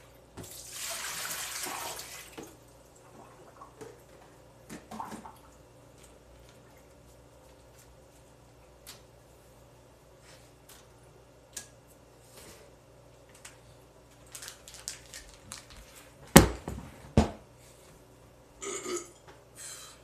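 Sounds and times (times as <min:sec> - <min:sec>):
items knocking on a counter: 0:16.3 - 0:17.4.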